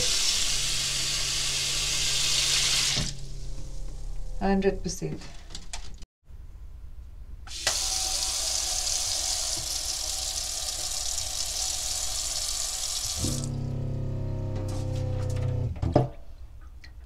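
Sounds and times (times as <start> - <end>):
tap water running into a sink: 7.5 - 13.5.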